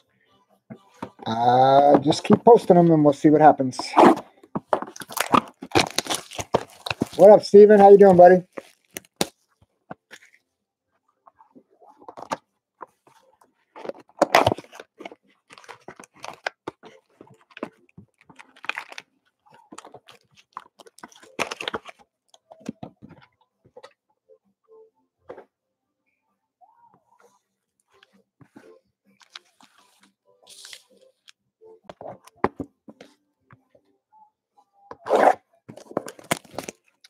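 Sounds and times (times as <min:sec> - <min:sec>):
card packs crinkling: 0:01.0 - 0:09.4, 0:13.7 - 0:23.0, 0:29.2 - 0:31.3, 0:35.7 - 0:37.0.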